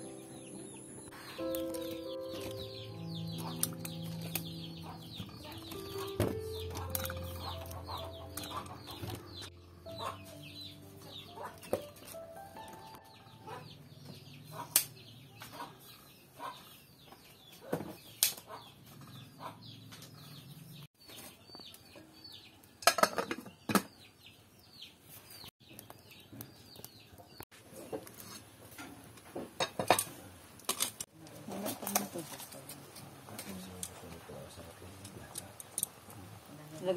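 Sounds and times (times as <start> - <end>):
chickens peeping and clucking: 0.0 - 17.0
corn cobs clattering into metal pot: 22.8 - 23.8.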